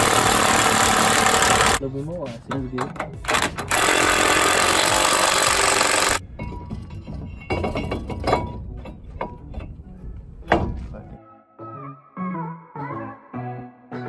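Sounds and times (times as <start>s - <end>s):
impact wrench hammering: 0.0s - 1.8s, 2.8s - 9.8s
metal clinks and knocks: 6.2s - 11.1s.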